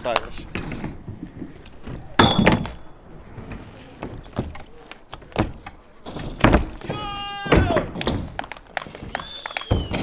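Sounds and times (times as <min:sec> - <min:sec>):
bikes rolling over ramps: 0:00.4 - 0:10.0
bike rider landing thud: 0:01.8 - 0:02.9.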